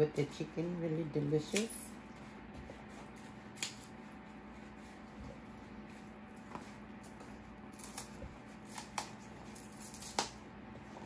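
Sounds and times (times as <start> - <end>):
leaf stalk snapping and ripping: 3.5 - 3.9, 7.0 - 10.4.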